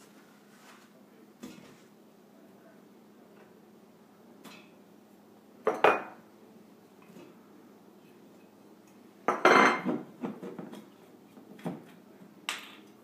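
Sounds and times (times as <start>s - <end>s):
ceramic plates clattering on counter: 5.7s - 6.2s, 9.3s - 10.4s.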